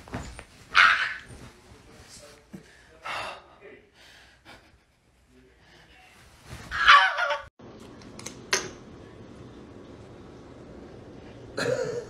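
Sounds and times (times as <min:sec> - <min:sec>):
low steady hum: 0:07.6 - 0:12.0.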